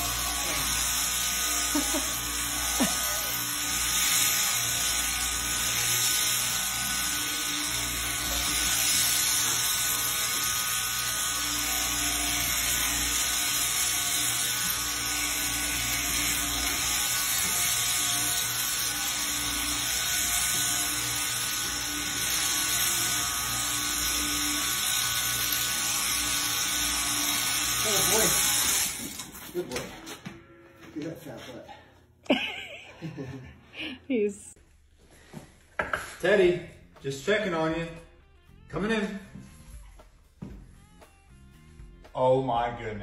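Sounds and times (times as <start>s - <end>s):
electric sheep shears cutting fleece: 0.0s - 33.9s.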